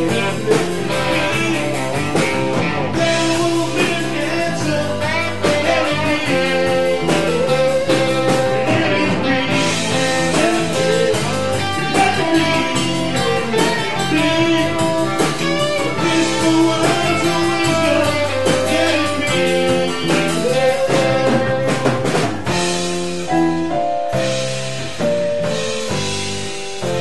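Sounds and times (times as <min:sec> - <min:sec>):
electric guitar lead with bending notes: 0:00.0 - 0:27.0
rock band playing a slow ballad: 0:00.0 - 0:27.0.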